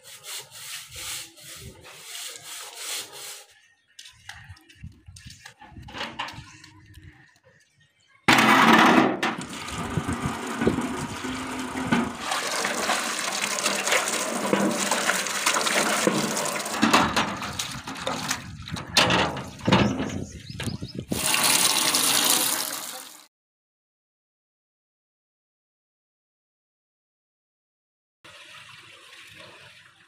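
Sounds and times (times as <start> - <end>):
water splashing into metal tub: 8.3 - 20.3, 21.1 - 23.3.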